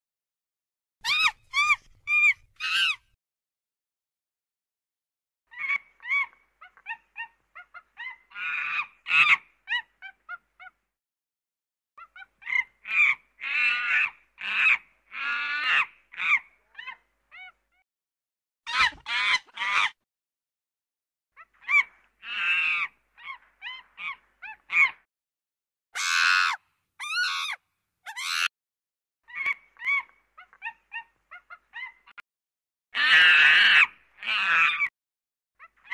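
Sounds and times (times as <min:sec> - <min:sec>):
monkey squeals and chirps: 0:01.0 - 0:03.1, 0:05.5 - 0:10.8, 0:12.0 - 0:17.6, 0:18.7 - 0:20.0, 0:21.4 - 0:25.1, 0:26.0 - 0:28.5, 0:29.3 - 0:32.2, 0:35.6 - 0:35.9.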